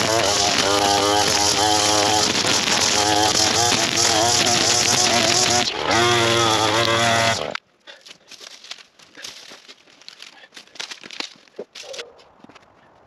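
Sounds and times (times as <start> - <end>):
chainsaw engine running: 0.0 - 7.6
footsteps in dry leaves: 7.9 - 13.0.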